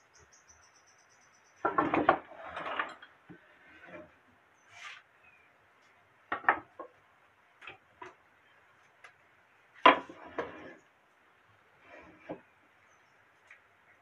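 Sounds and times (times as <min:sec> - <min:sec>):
wooden boards knocking on workbench: 0:06.3 - 0:06.9, 0:09.9 - 0:10.2.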